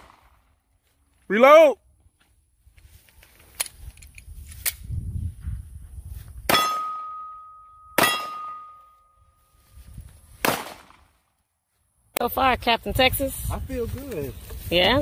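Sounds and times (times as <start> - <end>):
steel target ringing: 6.5 - 9.2
pistol shots: 8.0 - 8.6, 10.4 - 11.0.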